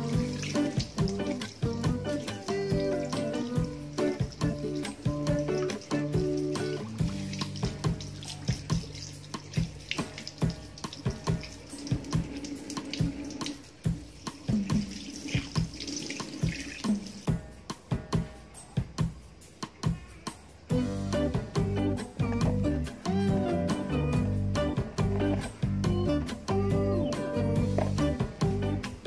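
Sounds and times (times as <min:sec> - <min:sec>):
tap water running: 0:00.0 - 0:17.3
water splashing: 0:00.0 - 0:17.3.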